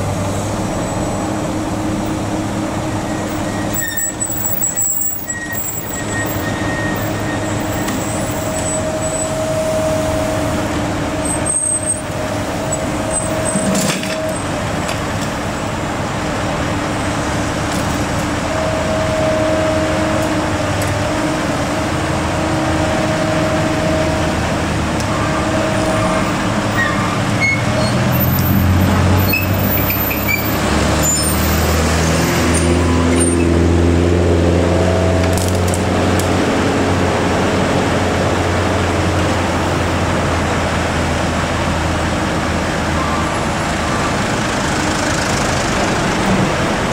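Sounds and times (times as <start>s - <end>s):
excavator diesel engine: 0.0s - 46.9s
trucks passing: 0.0s - 46.9s.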